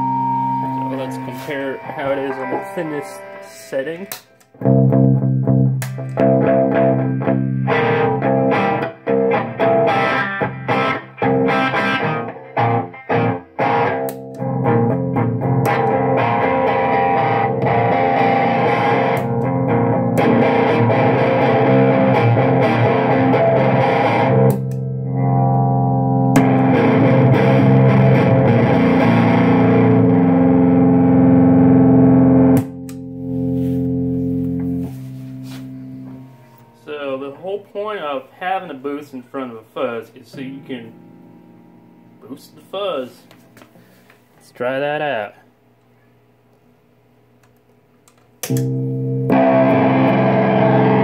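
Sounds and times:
distorted electric guitar chords: 0.0s - 37.3s, 40.3s - 44.0s, 48.4s - 51.0s.

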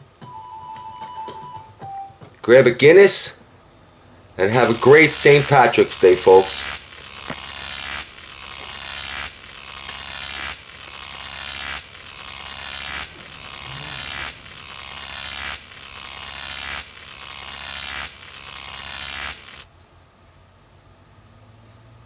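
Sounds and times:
low hum: 3.9s - 19.7s
hissing buzzy swell: 4.4s - 19.7s.

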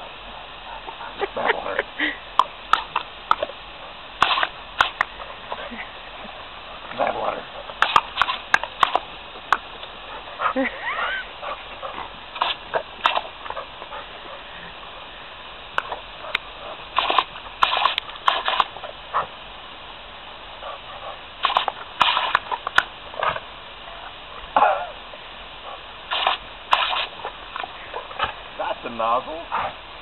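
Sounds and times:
dog snapping and slurping: 2.4s - 3.5s, 4.2s - 5.7s, 6.9s - 10.0s, 11.4s - 14.0s, 15.8s - 19.3s, 21.4s - 23.5s, 26.1s - 28.4s.

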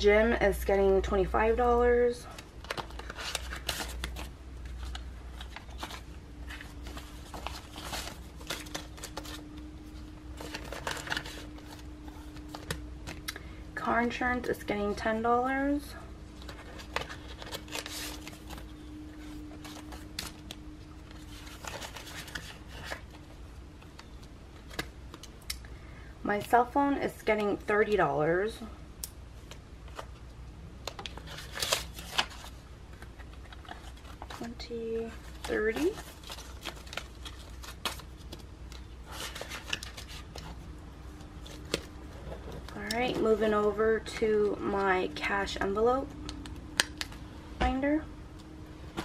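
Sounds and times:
paper and plastic rustling: 2.3s - 13.2s, 16.3s - 25.3s, 30.8s - 44.9s.

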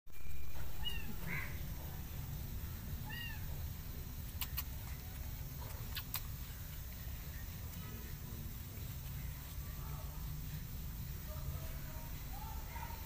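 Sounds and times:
kitten mewing: 0.8s - 1.8s, 3.0s - 3.6s.

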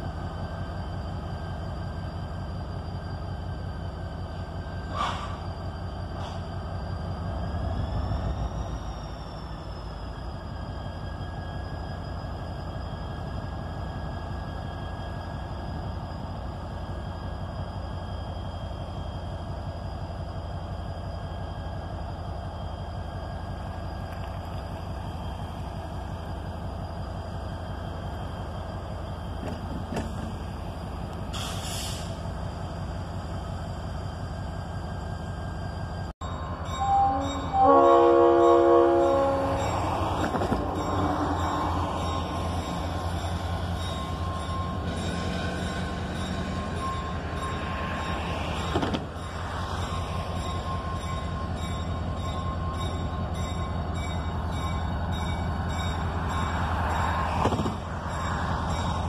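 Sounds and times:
diesel locomotive engine rumble: 0.0s - 59.0s
air hiss: 31.3s - 32.2s.

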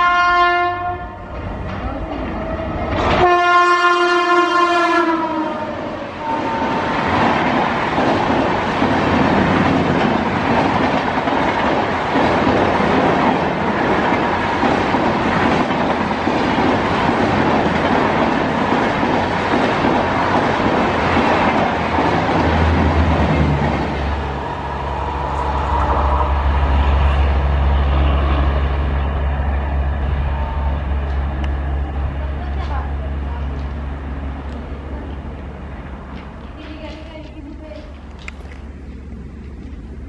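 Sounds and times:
train horn blast: 0.0s - 1.3s, 3.1s - 6.9s, 25.0s - 33.6s
train wheels clacking on rails: 6.4s - 28.6s, 30.8s - 39.8s.

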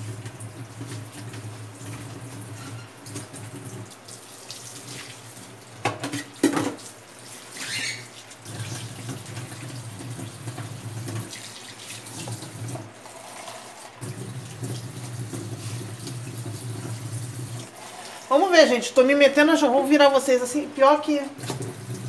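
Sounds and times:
tap water running into sink: 0.0s - 18.3s, 21.3s - 22.0s.

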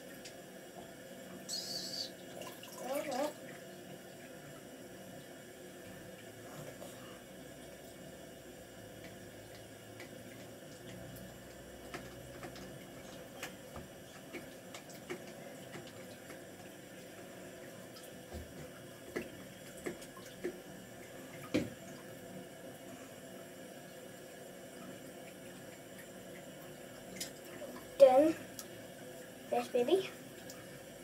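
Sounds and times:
water splashing and dripping: 1.9s - 5.4s, 9.0s - 22.2s, 24.7s - 30.8s.

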